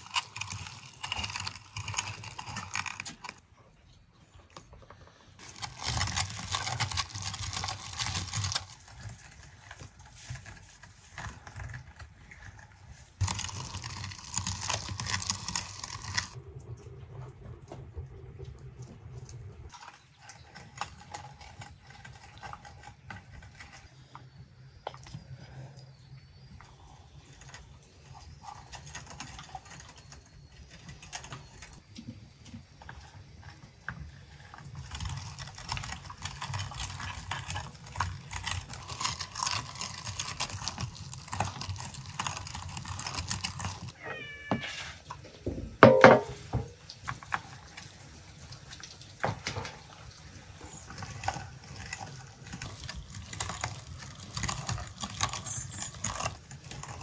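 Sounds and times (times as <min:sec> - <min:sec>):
fish squelching through grinder: 0:00.0 - 0:03.4, 0:05.2 - 0:16.6, 0:33.2 - 0:44.4, 0:45.8 - 0:57.0
meat grinder crank turning: 0:00.0 - 0:03.4, 0:05.4 - 0:09.9, 0:13.2 - 0:16.4, 0:34.6 - 0:44.0, 0:50.7 - 0:57.0.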